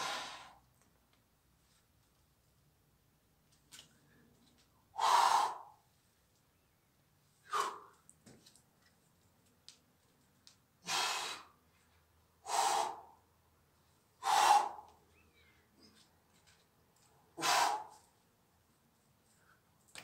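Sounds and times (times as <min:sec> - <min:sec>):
person exhaling forcefully: 0:12.5 - 0:13.1, 0:14.2 - 0:14.8.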